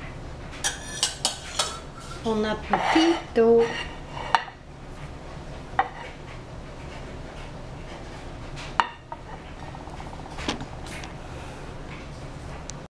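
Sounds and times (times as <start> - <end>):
plate clinking on tiled countertop: 0.6 - 3.2.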